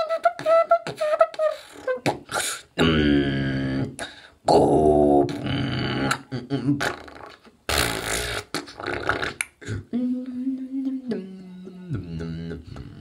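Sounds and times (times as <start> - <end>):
beatboxing mouth percussion: 0.0 - 10.0, 10.8 - 13.0
long mouth hiss: 1.6 - 3.0, 6.8 - 10.0.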